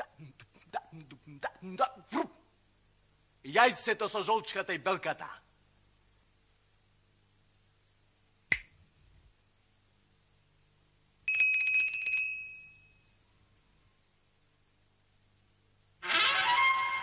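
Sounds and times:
sharp snap: 8.5 - 8.8
small bell ringing: 11.2 - 13.2.

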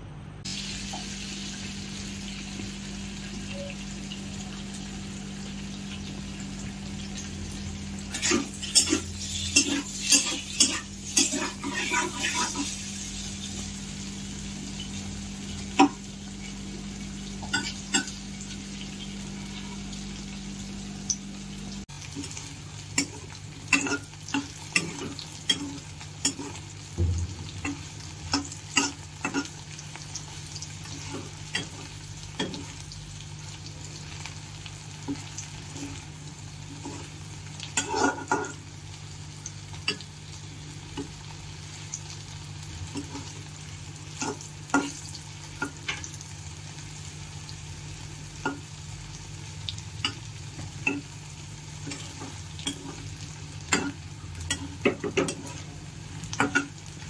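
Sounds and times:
food sizzling in oil: 0.4 - 57.0
metal spatula scraping pan: 8.1 - 12.8.

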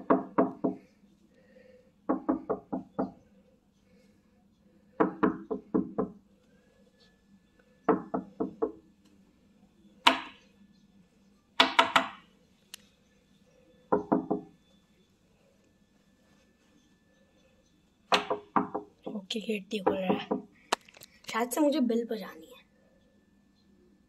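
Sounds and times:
knuckles knocking on door: 0.0 - 0.8, 2.1 - 3.2, 5.0 - 6.2, 7.9 - 8.8, 11.6 - 12.2, 13.9 - 14.5, 18.1 - 19.0, 19.8 - 20.5.

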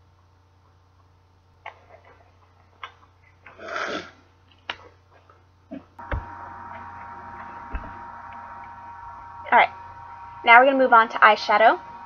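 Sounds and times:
steady hum: 5.2 - 12.0
low thump: 7.7 - 8.0.

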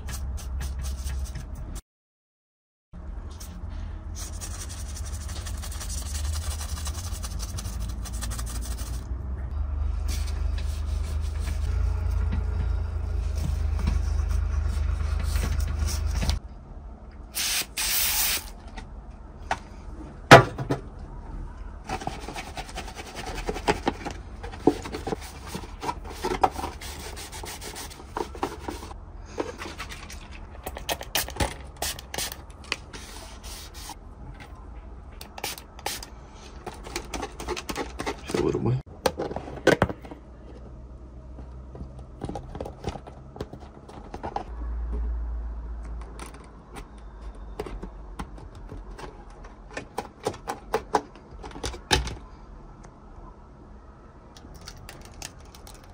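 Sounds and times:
brush scrubbing soap foam: 4.2 - 9.0.

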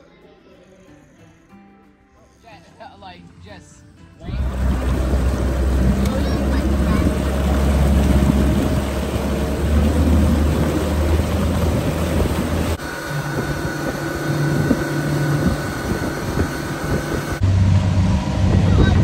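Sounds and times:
wind: 2.0 - 19.0
engine drone with high whine: 4.2 - 19.0
motorboat engine running: 4.2 - 19.0
water noise: 4.2 - 19.0.

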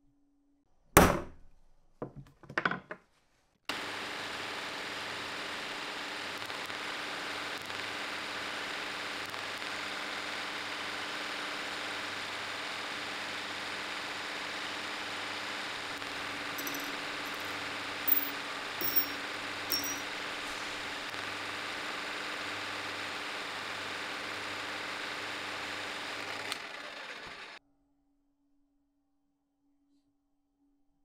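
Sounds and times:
milling machine running: 20.8 - 27.6.

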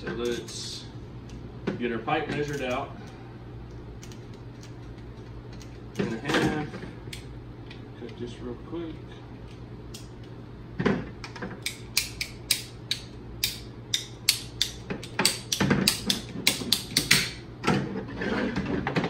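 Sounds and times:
pipe cutter ratchet clicking: 11.6 - 17.4.

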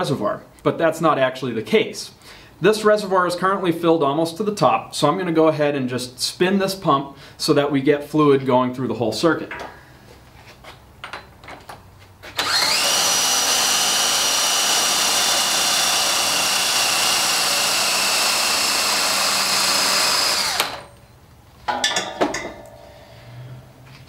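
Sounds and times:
cordless drill spinning pump: 12.3 - 20.9.

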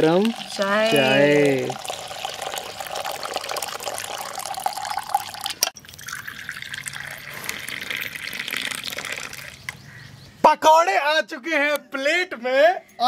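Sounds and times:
liquid pouring: 0.0 - 9.7.

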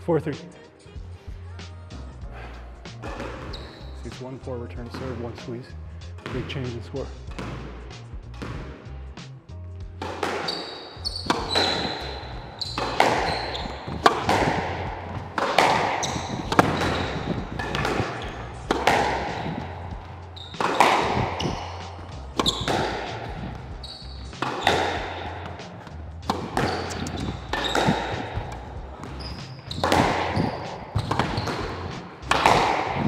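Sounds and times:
shoe squeaks: 3.0 - 4.2, 10.0 - 33.0
squash ball cracks with echo: 10.0 - 33.0.

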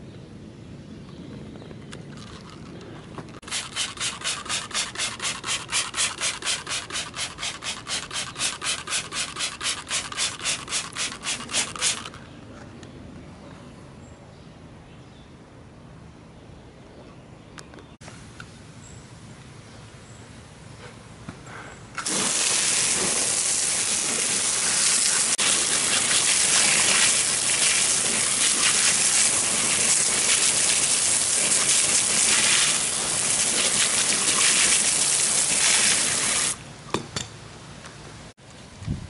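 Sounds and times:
hose spraying water on wheel: 3.4 - 12.1, 22.0 - 36.6.

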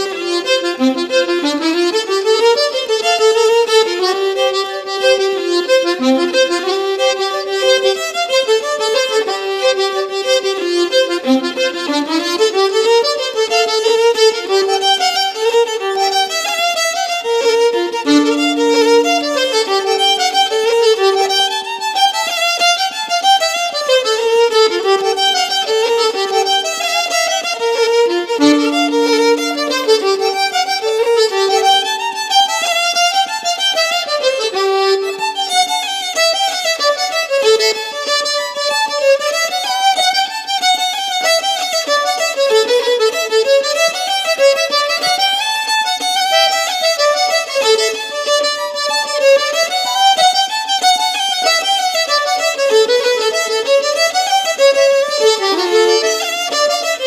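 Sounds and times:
fast lilting melody: 18.0 - 21.7, 28.4 - 32.6.

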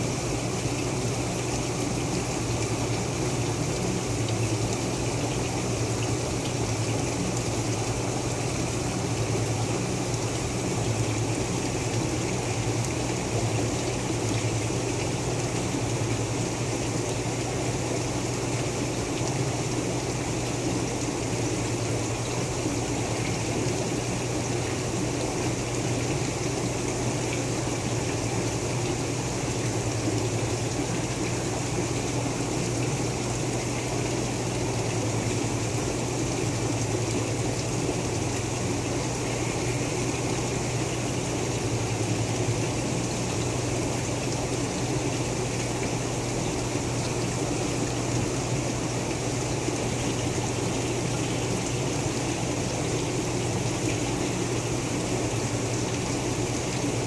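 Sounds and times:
water pump humming: 0.0 - 57.0
water running and splashing: 0.0 - 57.0.

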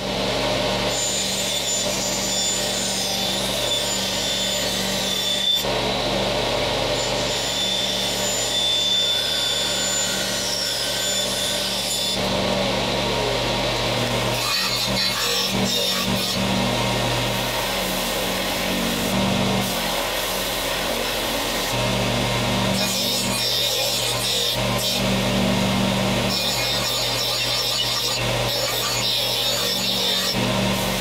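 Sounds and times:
band saw cutting wood: 0.0 - 31.0
belt and disc sander running: 11.7 - 31.0.

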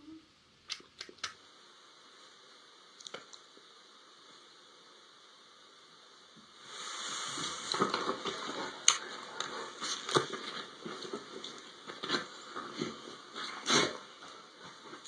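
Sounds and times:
bedding rustling: 6.6 - 15.0.

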